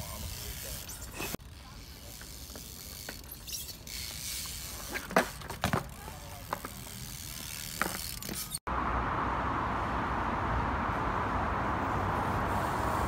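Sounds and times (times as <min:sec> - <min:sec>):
bike freewheel hub ticking: 0:00.0 - 0:08.6
bike knocking on ground: 0:04.8 - 0:07.0, 0:07.6 - 0:08.4.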